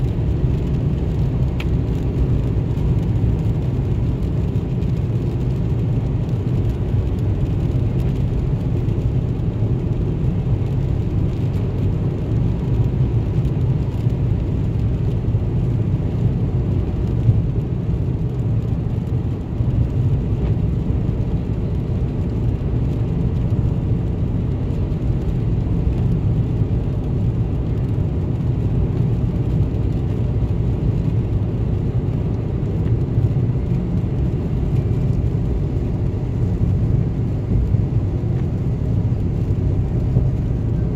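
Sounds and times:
vehicle driving on wet pavement: 0:00.0 - 0:40.9.

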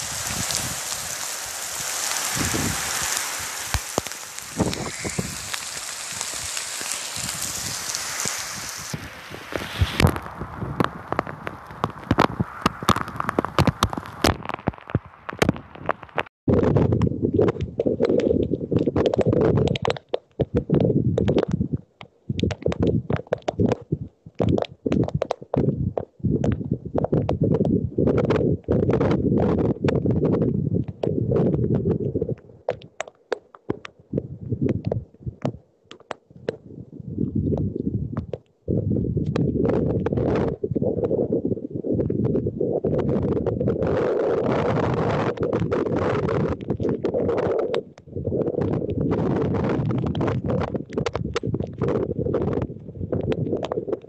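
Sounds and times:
hail and rain falling: 0:00.0 - 0:16.0
wind buffeting microphone: 0:00.0 - 0:19.8, 0:36.4 - 0:54.0.

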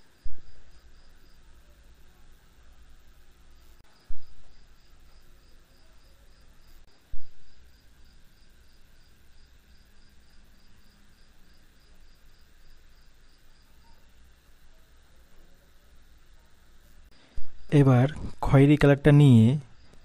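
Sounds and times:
cricket chirping: 0:00.0 - 0:20.0.

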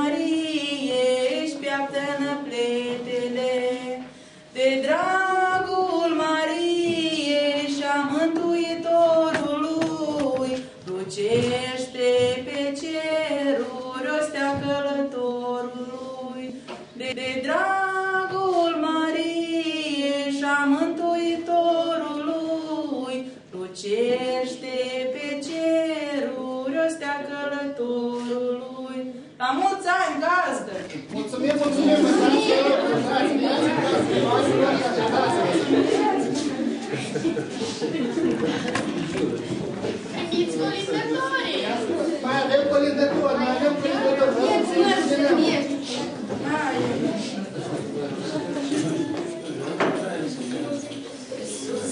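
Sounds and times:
woman singing unaccompanied: 0:00.0 - 0:29.8.

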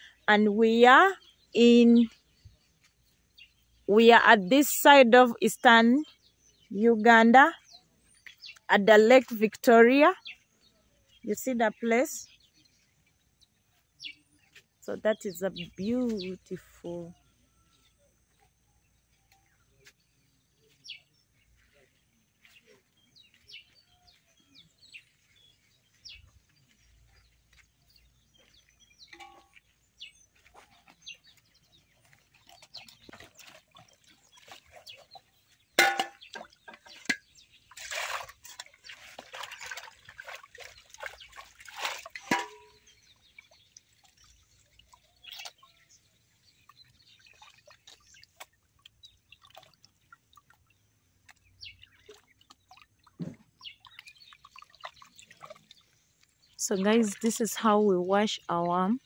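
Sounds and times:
water splashing in metal basins: 0:21.3 - 0:59.0
metal clank on basin: 0:35.8 - 0:37.3, 0:42.1 - 0:42.9.

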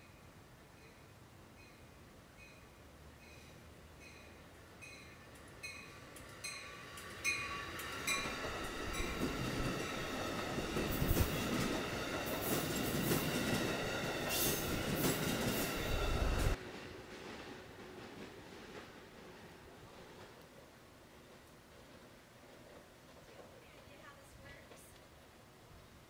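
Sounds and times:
train coaches rumbling past: 0:02.4 - 0:24.9
train wheels clicking over rails: 0:05.3 - 0:23.9.

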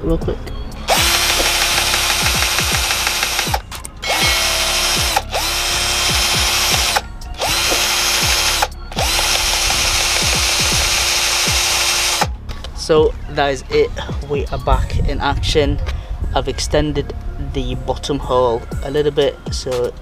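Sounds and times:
cordless drill drilling plastic: 0:00.9 - 0:12.3.

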